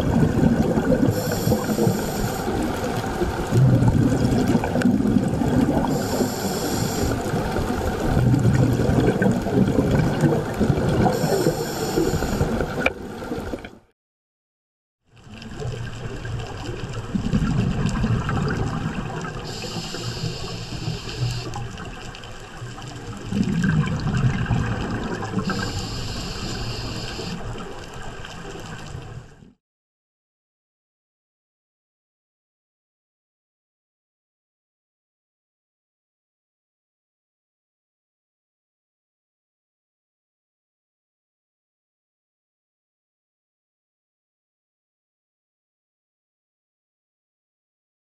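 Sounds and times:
exhaled bubbles rushing: 0:00.0 - 0:13.7, 0:15.2 - 0:27.7
regulator inhale hiss: 0:01.1 - 0:02.6, 0:05.8 - 0:07.3, 0:11.1 - 0:12.7, 0:19.5 - 0:21.6, 0:25.4 - 0:27.5.

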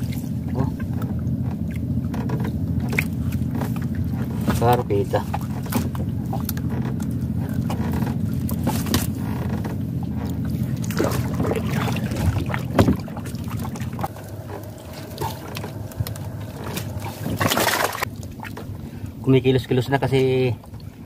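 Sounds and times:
low engine hum: 0:00.0 - 0:21.0
wet net dragging over boat edge: 0:02.3 - 0:18.9
water splashing and dripping: 0:10.2 - 0:18.8
knocks against boat hull: 0:12.3 - 0:13.2.

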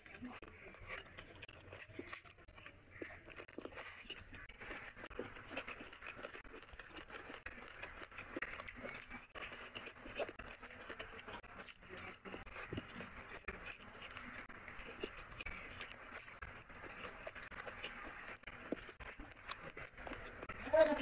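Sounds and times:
fingers squishing food: 0:00.0 - 0:21.0
wet smacks and crackles: 0:00.0 - 0:21.0.

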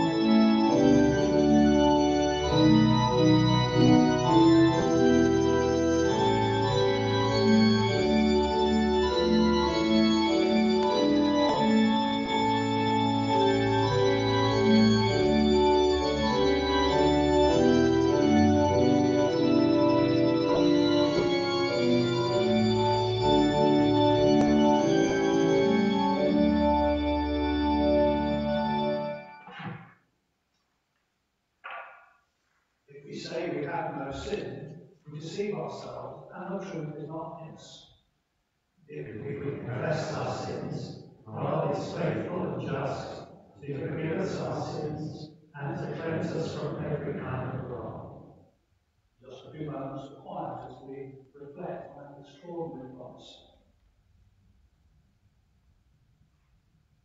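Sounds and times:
organ chords: 0:00.0 - 0:29.8, 0:38.9 - 0:48.6.

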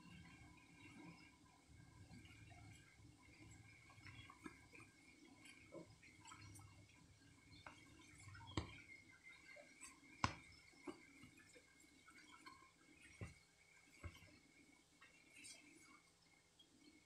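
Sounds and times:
faint taps against bowl: 0:10.2 - 0:10.6.

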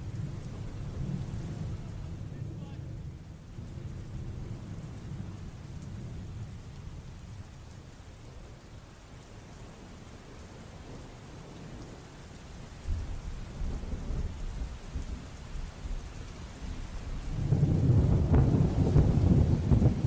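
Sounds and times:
rolling thunder: 0:00.0 - 0:07.4, 0:12.8 - 0:20.0
rain: 0:00.0 - 0:20.0.

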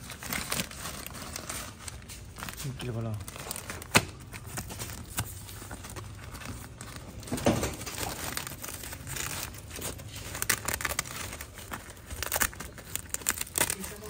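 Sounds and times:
nylon cover crinkling and rustling: 0:00.0 - 0:14.0.

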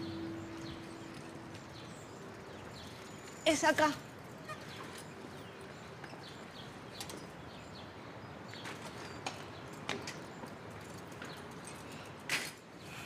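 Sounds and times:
faint bird chirps: 0:00.0 - 0:06.7
bicycle clicks and creaks: 0:01.1 - 0:07.4, 0:08.6 - 0:13.0.

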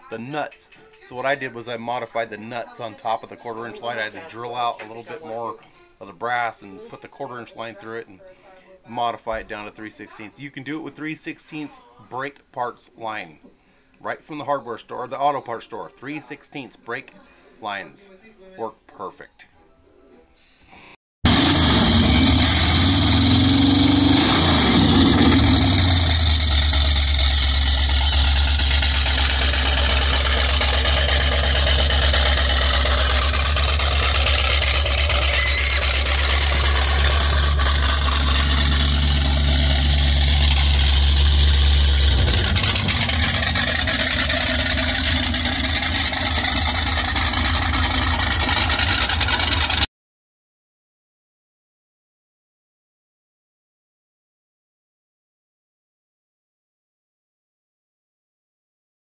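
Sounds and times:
boat engine revving and idling: 0:21.3 - 0:49.9.

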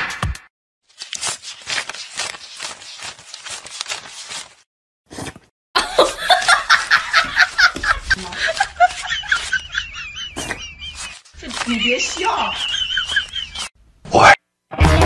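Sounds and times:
banknotes riffled by hand: 0:10.4 - 0:13.7.

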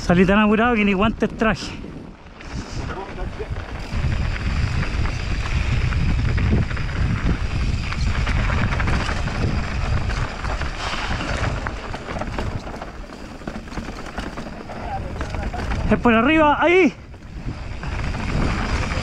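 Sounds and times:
bike rolling on dirt trail: 0:00.0 - 0:19.0
wind buffeting microphone: 0:00.0 - 0:19.0.

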